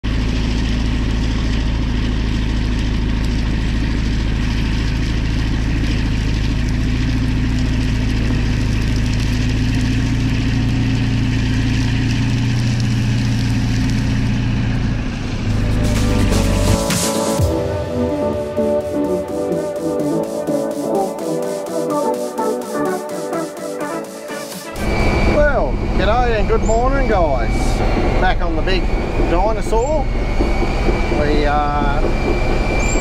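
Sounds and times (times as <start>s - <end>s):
bulldozer diesel engine under load: 0.0s - 16.8s, 24.8s - 33.0s.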